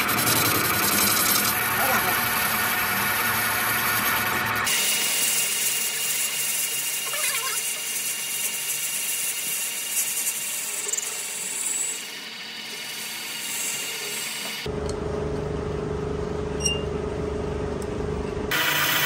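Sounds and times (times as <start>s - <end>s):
metal lathe cutting with whine: 0.0s - 14.7s, 18.5s - 19.0s.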